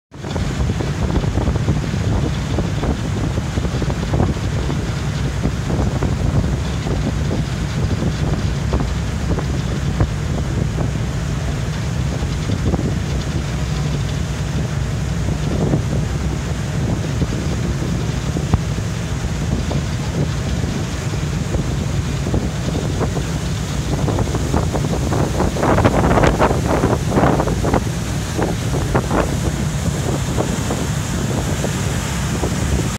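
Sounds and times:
boat wake churning: 0.1s - 32.9s
motor boat engines droning: 0.1s - 32.9s
wind buffeting microphone: 0.1s - 32.9s.

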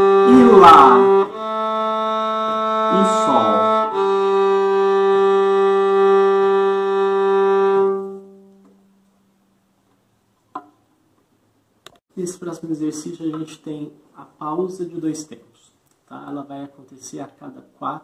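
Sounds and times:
violin bowed slow notes: 0.0s - 8.6s.

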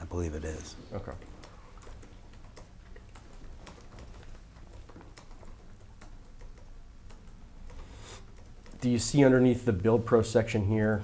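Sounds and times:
low room hum: 0.0s - 11.0s
keyboard typing clicks: 1.2s - 8.9s.

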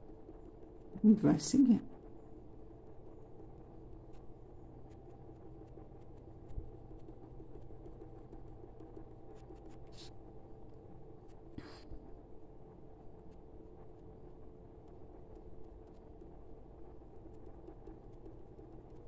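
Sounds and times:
colored pencil scratching on paper: 7.8s - 10.2s.

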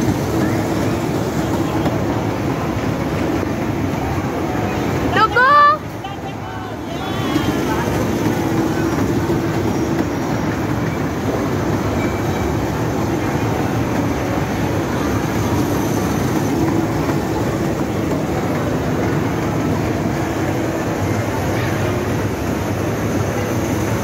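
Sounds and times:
toy train running on track: 0.0s - 24.0s.

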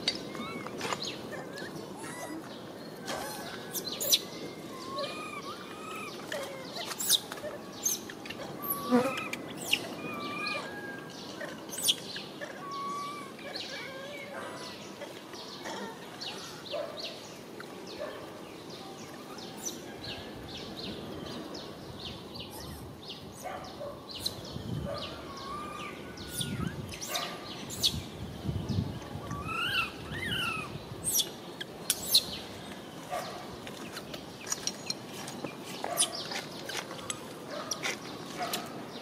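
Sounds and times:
rise-and-fall calls: 0.0s - 16.6s, 25.1s - 27.8s.

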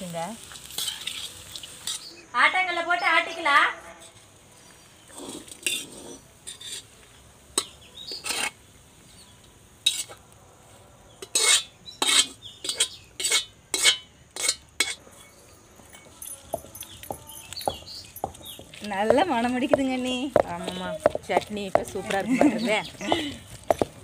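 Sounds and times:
metal spatula scraping a pan: 0.6s - 2.1s, 5.2s - 7.0s, 7.6s - 8.6s, 9.8s - 10.2s, 11.2s - 15.3s.

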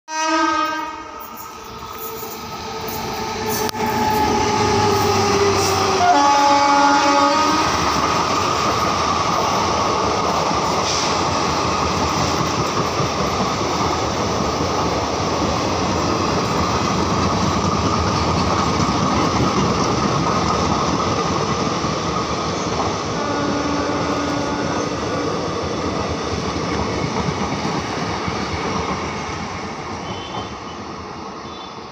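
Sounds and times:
train horn blasts: 0.1s - 1.5s, 3.7s - 7.8s, 23.2s - 25.3s, 30.0s - 30.8s, 31.4s - 31.8s
train wheels clattering on rails: 7.6s - 31.6s.

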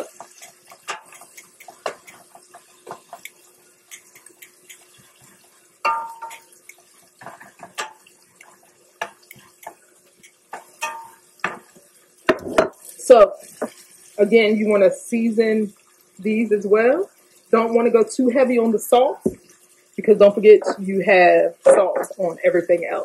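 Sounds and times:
oil sizzling: 0.0s - 23.0s
utensil knocking metal pan: 5.8s - 6.5s, 10.6s - 11.6s.

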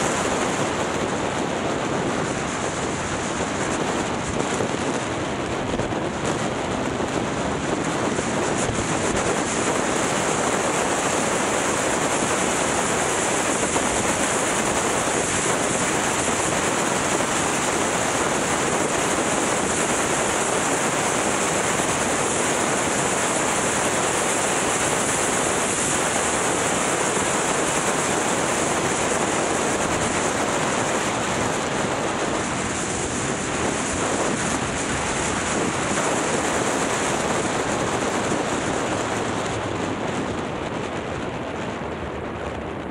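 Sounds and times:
motorcycle road noise: 0.0s - 42.9s
wind rushing over microphone: 0.0s - 42.9s.

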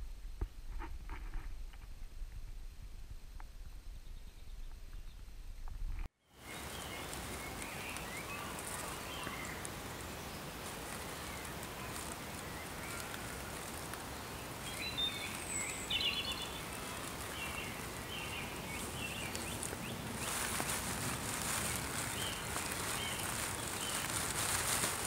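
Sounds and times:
steady background hiss: 1.9s - 25.0s
rustling: 4.7s - 25.0s
birds chirping: 6.4s - 25.0s.

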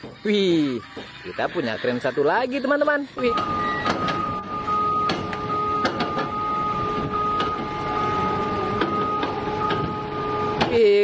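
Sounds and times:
crane machinery whining: 3.1s - 11.0s.

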